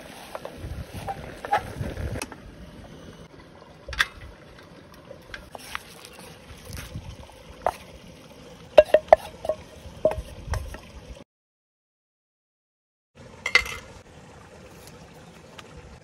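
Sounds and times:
pot ringing: 8.8s - 10.3s
spatula knocking on pot: 8.8s - 10.3s
spatula scraping a metal pot: 8.8s - 10.8s.

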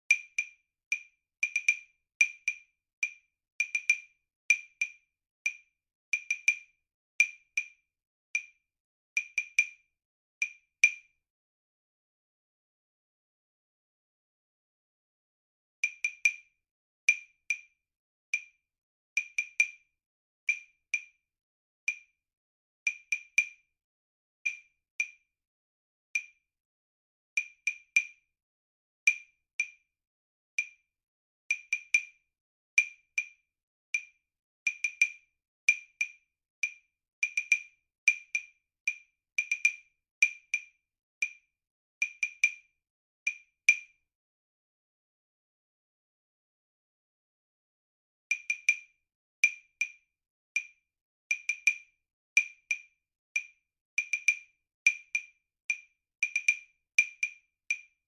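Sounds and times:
wood block clicks: 0.1s - 5.6s, 20.5s - 21.1s, 34.7s - 41.4s, 42.0s - 42.6s, 48.3s - 48.8s, 50.6s - 52.8s, 53.4s - 57.9s.

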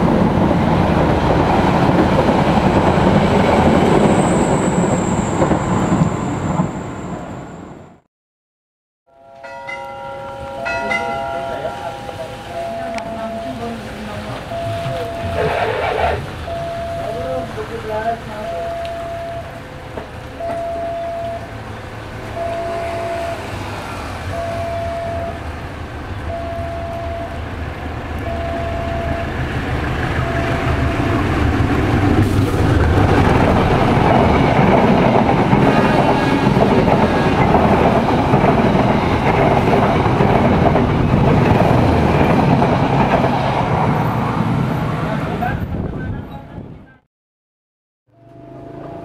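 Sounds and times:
train rumbling past on rails: 0.0s - 8.0s, 9.2s - 46.9s
level crossing warning tone: 9.1s - 42.6s, 48.1s - 49.0s.

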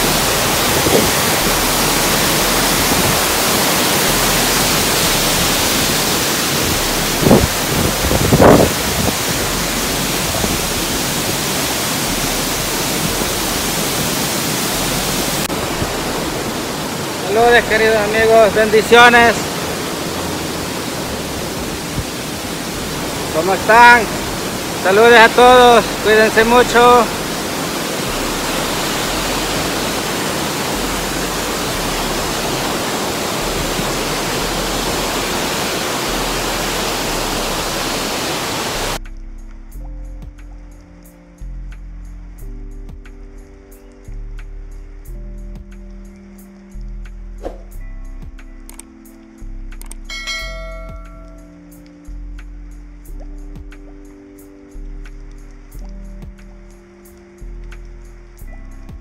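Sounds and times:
waterfall rushing: 0.0s - 39.0s, 50.1s - 51.7s.

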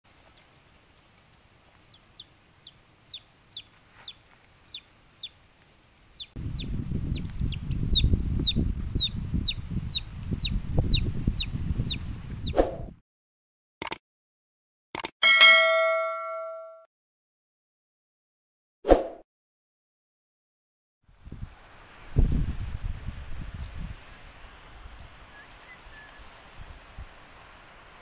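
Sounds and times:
chick peeping: 1.8s - 5.4s, 6.0s - 12.6s.

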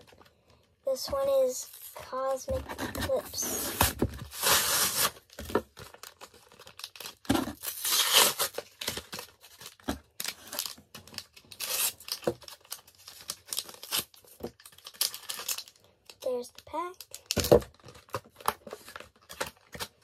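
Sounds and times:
packaging tearing and crinkling: 3.6s - 16.2s, 17.0s - 20.0s.

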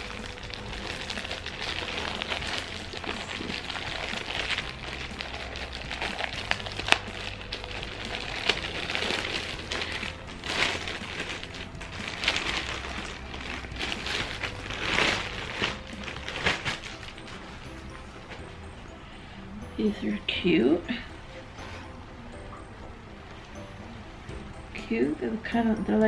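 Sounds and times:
sharp plastic crackles: 0.0s - 17.4s
plastic bag crinkling: 0.0s - 17.6s.

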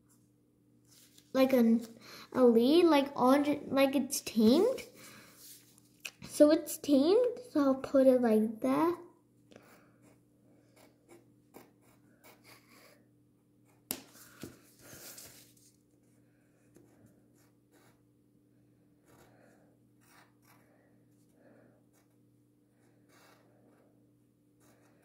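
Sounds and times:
paper rustling: 0.9s - 1.9s, 13.9s - 15.8s
pencil scratching on paper: 9.6s - 14.1s, 16.6s - 18.1s, 19.0s - 19.3s, 20.0s - 20.6s, 21.9s - 22.2s, 22.8s - 23.9s, 24.6s - 25.0s.

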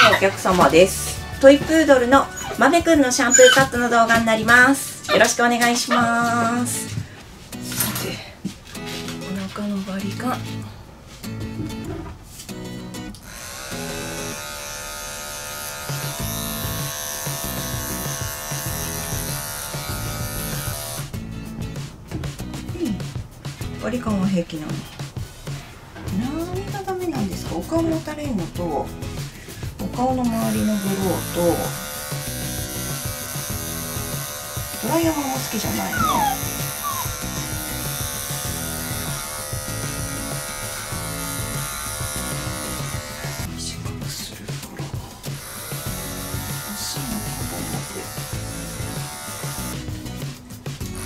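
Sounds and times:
background music: 0.0s - 51.0s
electric clippers running: 13.1s - 21.4s, 30.3s - 43.5s, 45.3s - 50.2s.

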